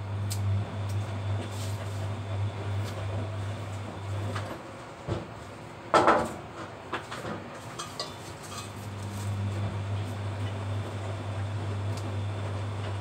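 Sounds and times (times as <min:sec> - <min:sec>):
kitchen things clattering: 0:07.7 - 0:08.9.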